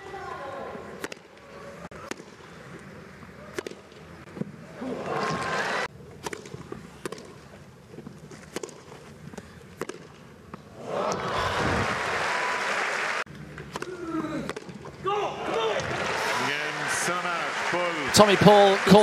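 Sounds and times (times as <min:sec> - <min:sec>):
crowd noise: 0:00.0 - 0:05.9, 0:10.7 - 0:13.4, 0:15.3 - 0:19.0
tennis racket hitting ball: 0:09.8 - 0:10.1.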